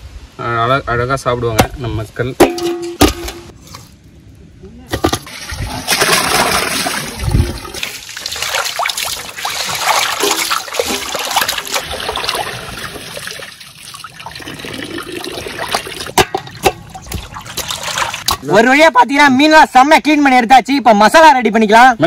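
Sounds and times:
water splashing in metal basin: 0:05.0 - 0:18.4.

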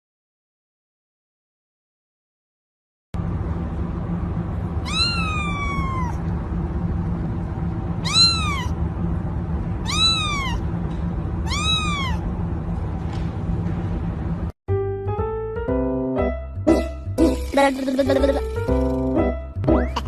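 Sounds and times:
steady low hum: 0:03.2 - 0:14.6
kitten meowing: 0:04.8 - 0:06.2, 0:08.0 - 0:08.8, 0:09.8 - 0:10.6, 0:11.4 - 0:12.2.

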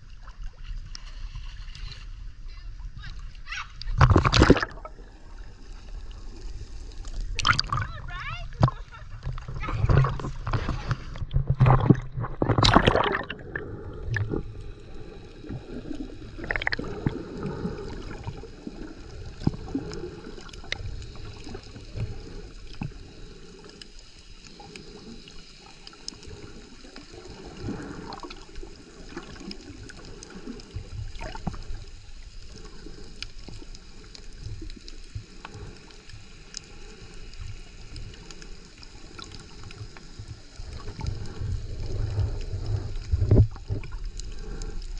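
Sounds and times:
water splashing: 0:00.0 - 0:44.9
faint underwater clicks: 0:00.1 - 0:44.9
muffled underwater gurgling: 0:02.5 - 0:06.2, 0:07.2 - 0:23.8, 0:37.9 - 0:44.9.

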